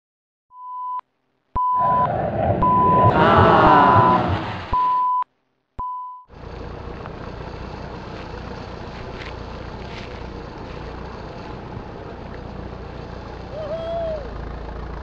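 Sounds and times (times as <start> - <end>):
test-tone beeps: 1.6 - 3.1, 3.8 - 5.2, 5.8 - 6.3
steady running noise: 6.3 - 13.8.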